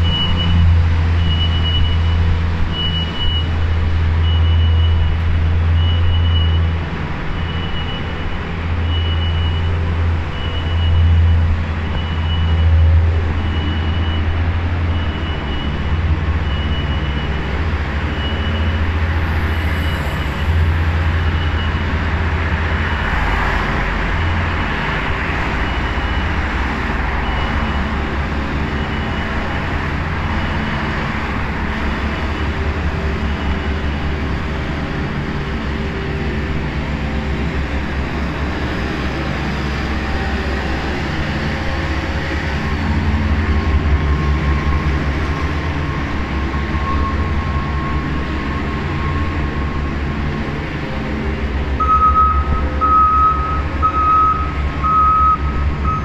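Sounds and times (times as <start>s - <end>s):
traffic rumble: 0.0s - 56.0s.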